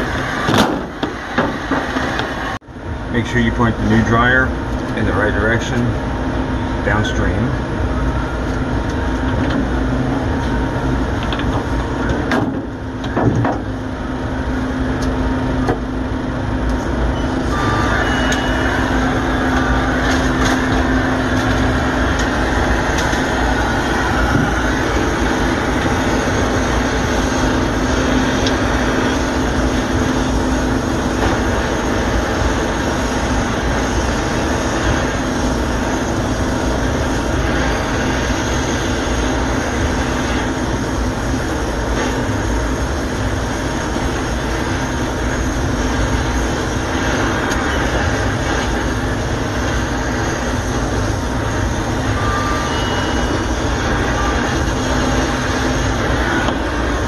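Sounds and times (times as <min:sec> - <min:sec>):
brazing torch flame: 0:00.0 - 0:03.2, 0:03.8 - 0:57.0
low hum: 0:00.0 - 0:57.0
machinery drone: 0:00.0 - 0:57.0
steady rushing noise: 0:00.0 - 0:57.0.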